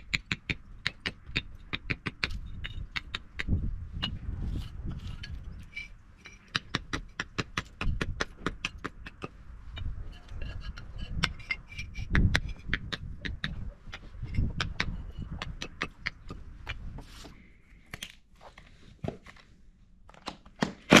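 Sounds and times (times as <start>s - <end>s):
hammer chipping brick: 6.2s - 9.4s, 20.6s - 21.0s.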